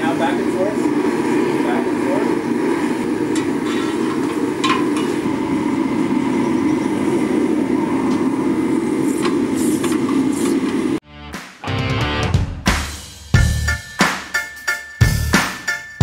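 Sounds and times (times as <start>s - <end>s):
gas forge burner roaring: 0.0s - 11.0s.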